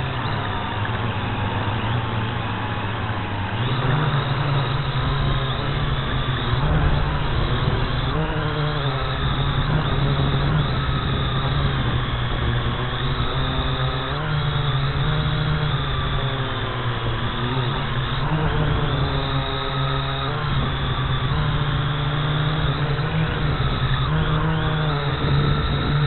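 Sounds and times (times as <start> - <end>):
drone propellers humming: 0.0 - 26.0
low buffeting rumble: 3.9 - 26.0.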